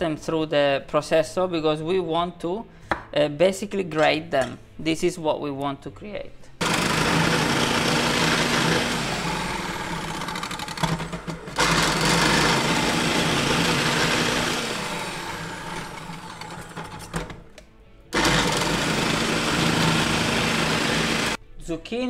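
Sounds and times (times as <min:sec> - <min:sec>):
food processor grating: 0:06.6 - 0:17.4, 0:18.2 - 0:21.4.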